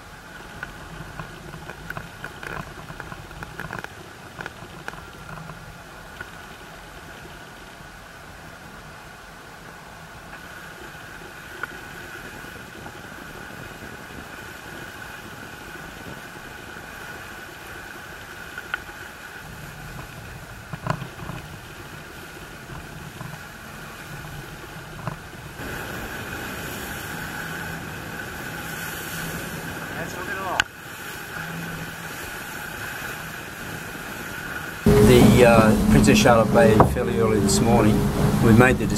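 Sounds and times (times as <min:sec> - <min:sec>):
water and wind rushing: 0:00.0 - 0:38.9
steady high hum: 0:34.8 - 0:38.9
sharp knocks: 0:34.9 - 0:38.4.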